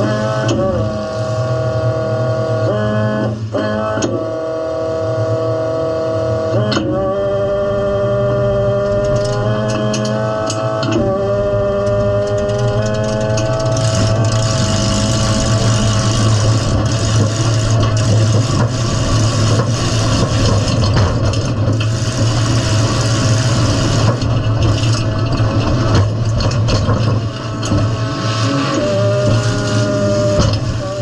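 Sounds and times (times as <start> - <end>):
car engine running loud: 0.0 - 31.0
car body rattling and scraping: 8.7 - 31.0.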